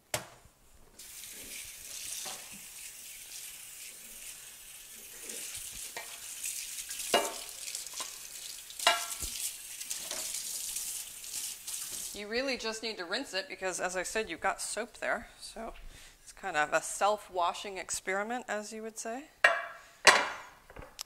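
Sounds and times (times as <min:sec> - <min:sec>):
faucet water running into sink: 0:01.0 - 0:12.2.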